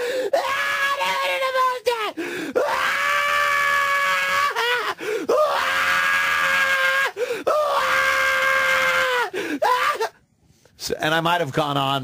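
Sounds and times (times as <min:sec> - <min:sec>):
man howling laugh impression: 0:02.8 - 0:07.0.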